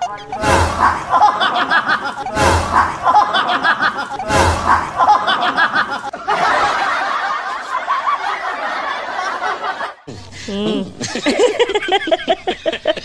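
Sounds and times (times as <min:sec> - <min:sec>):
duller canned laughter: 0:00.0 - 0:13.0
person snickering: 0:00.7 - 0:06.1, 0:10.1 - 0:13.0.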